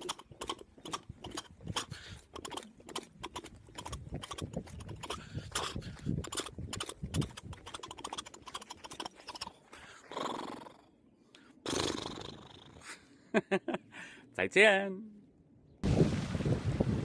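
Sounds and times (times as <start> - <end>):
man imitating clip-clop clicks: 0.0 - 9.9
man blowing like a horse: 0.0 - 10.3.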